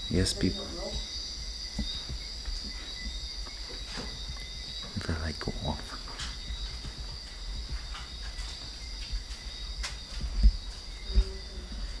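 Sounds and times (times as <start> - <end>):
night insects chirring: 0.0 - 12.0.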